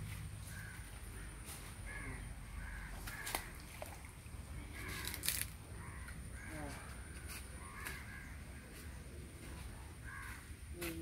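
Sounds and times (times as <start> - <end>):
birds calling: 0.2 - 10.7.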